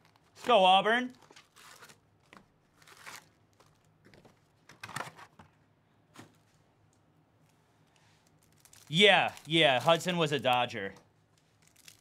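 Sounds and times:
foil card packs rustling: 0.0 - 5.4, 8.2 - 12.0.

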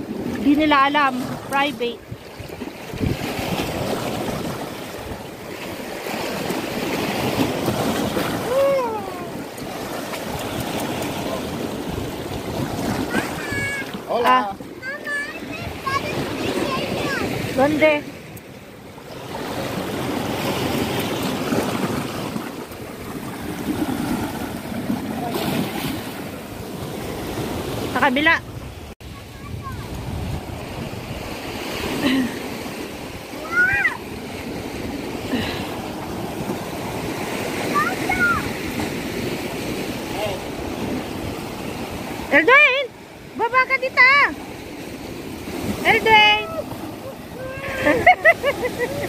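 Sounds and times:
wind buffeting microphone: 0.0 - 18.8, 19.4 - 32.1
surf washing over rocks: 0.0 - 49.0.

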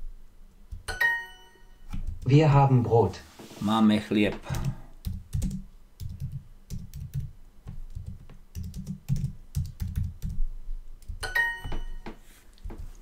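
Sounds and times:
typing on computer keyboard: 4.5 - 10.4.

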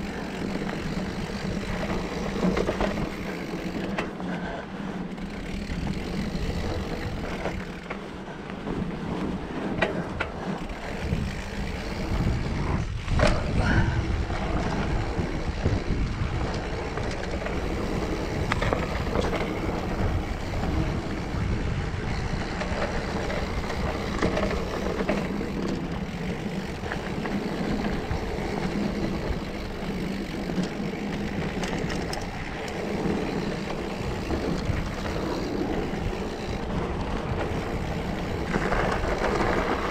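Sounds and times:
bike tyre noise on dirt: 0.0 - 39.9
wind on microphone: 8.7 - 39.9.

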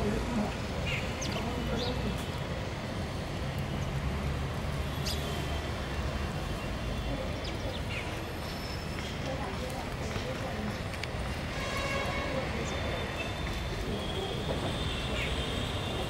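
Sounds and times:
distant traffic rumble: 0.0 - 16.0
sparrows chirping: 0.1 - 2.3, 3.8 - 11.1, 12.5 - 16.0.

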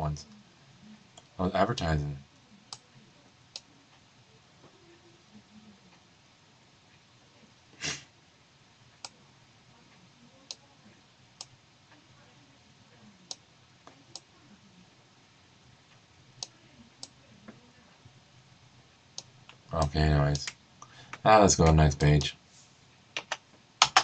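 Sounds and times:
computer mouse clicking: 23.1 - 24.0.

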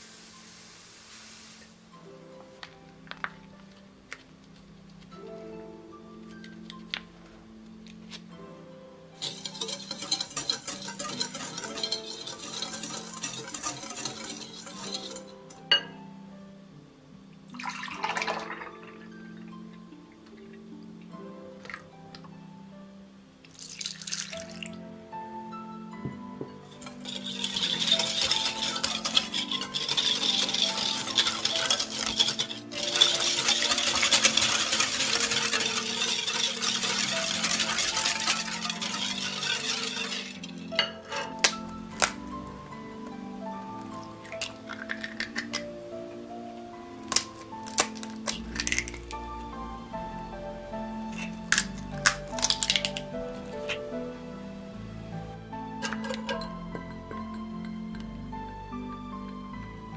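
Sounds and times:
whisk clicking and scraping glass bowl: 9.2 - 15.6, 26.6 - 42.2.

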